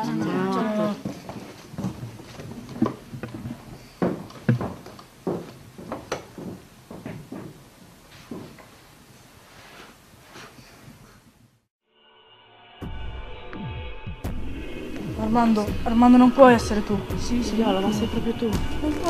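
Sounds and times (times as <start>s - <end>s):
irregular knocks and thumps: 1.0s - 7.7s.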